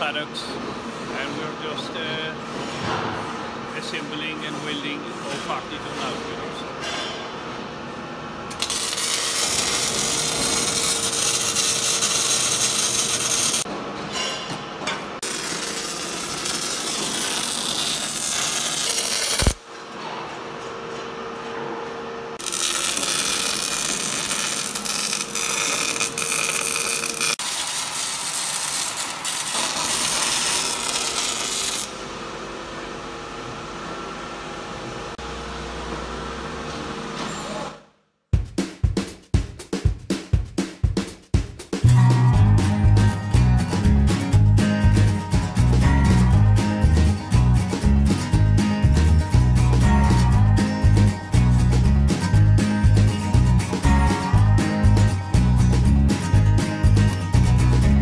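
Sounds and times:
welding arc crackling and hissing: 8.5s - 13.7s, 15.2s - 19.6s, 22.4s - 32.0s.

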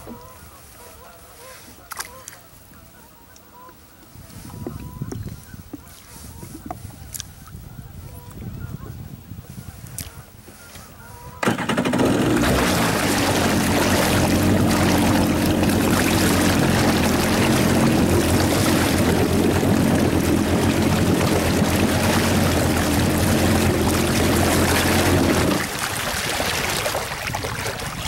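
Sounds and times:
water rushing along hull: 10.0s - 28.0s
jet ski engine running: 11.1s - 28.0s.

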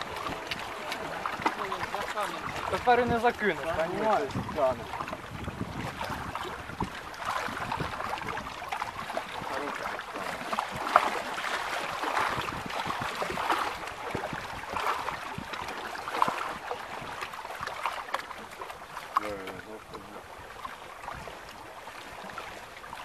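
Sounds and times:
waves lapping against boat hull: 0.0s - 23.0s.

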